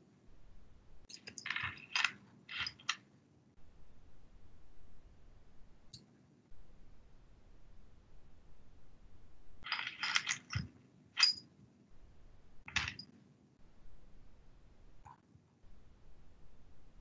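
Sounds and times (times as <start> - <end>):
small hard objects clicking: 1.1 - 3.0, 9.6 - 11.4, 12.7 - 13.0.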